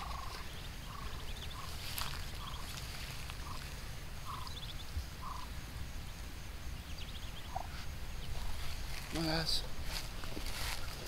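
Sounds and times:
ducklings peeping: 0:00.0 - 0:11.0
low background noise: 0:00.0 - 0:11.0
duck calling softly: 0:03.4 - 0:04.6, 0:05.2 - 0:05.5.

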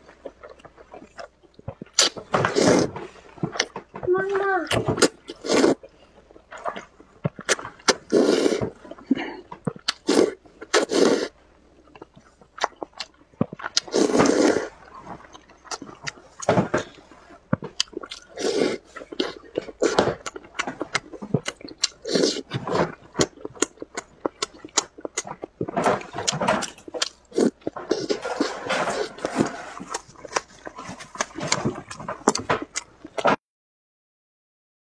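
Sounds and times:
wet chewing and lip-smacking: 0:00.0 - 0:04.0, 0:04.6 - 0:33.3
slurping noodles: 0:01.9 - 0:03.7, 0:04.7 - 0:05.9, 0:07.4 - 0:11.4, 0:13.7 - 0:32.4.

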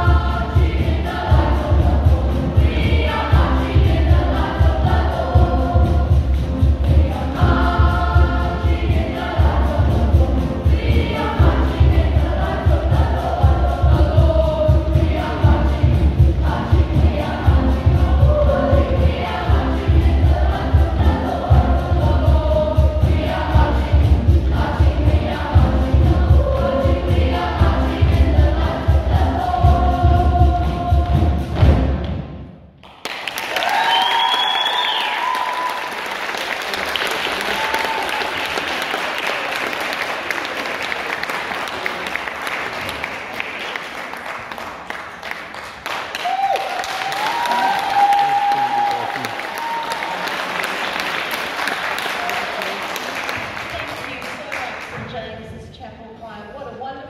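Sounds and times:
boys' choir singing: 0:00.0 - 0:31.5
audience applause and cheering: 0:32.8 - 0:54.9.

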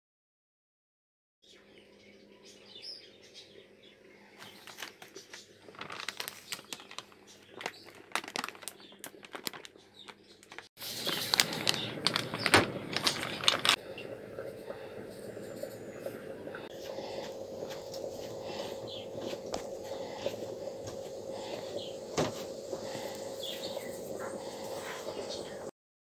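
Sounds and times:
plastic bag crinkling: 0:04.4 - 0:13.8.

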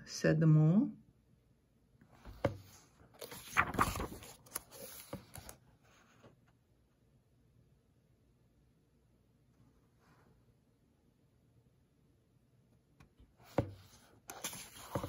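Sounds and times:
paper pages rustling: 0:02.2 - 0:06.3, 0:13.5 - 0:15.0.

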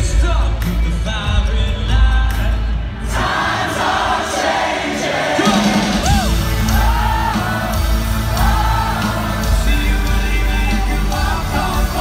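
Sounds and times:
live rock band: 0:00.0 - 0:12.0
person singing: 0:05.4 - 0:12.0.

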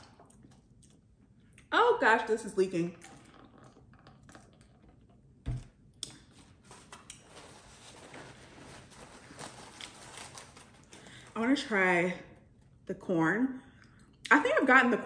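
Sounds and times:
packaging rustling and clicking: 0:06.4 - 0:11.2.

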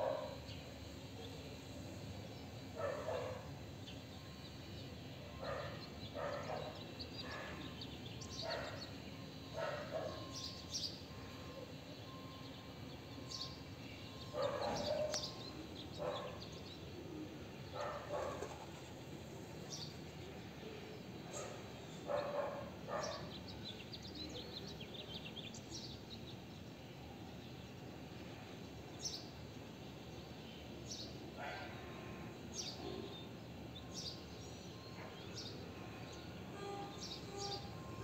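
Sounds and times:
faint high bird chirps: 0:00.0 - 0:18.5, 0:32.5 - 0:38.0.

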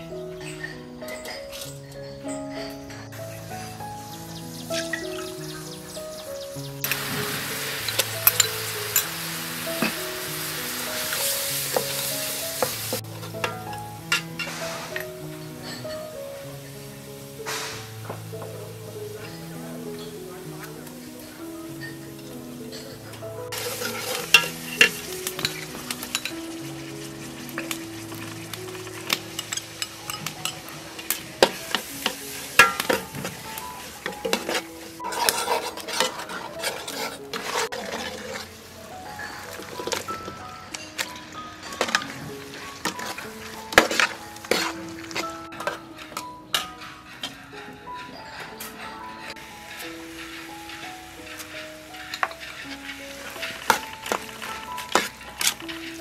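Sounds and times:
chili paste sizzling in a pot: 0:00.0 - 0:56.0
soft background music: 0:00.0 - 0:56.0
metal ladle clinking against pot: 0:07.8 - 0:09.1, 0:23.6 - 0:26.4, 0:27.6 - 0:38.5.

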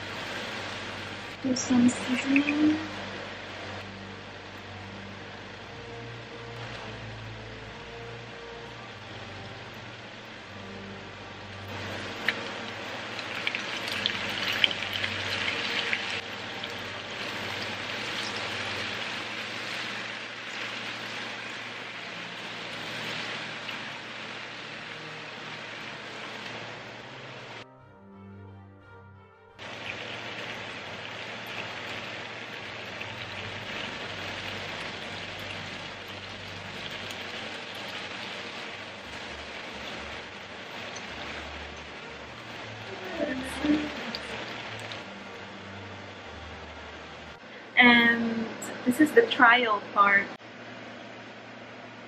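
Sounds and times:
oil sizzling in a frying pan: 0:00.0 - 0:27.6, 0:29.6 - 0:48.4
oil crackling and spitting: 0:29.6 - 0:45.1.

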